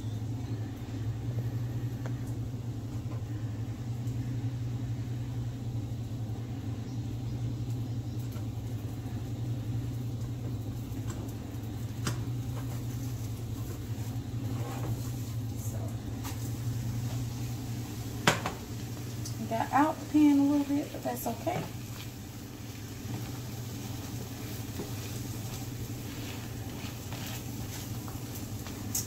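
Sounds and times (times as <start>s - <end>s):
low hum: 0.0s - 29.0s
spatula tapping skillet: 23.0s - 29.0s.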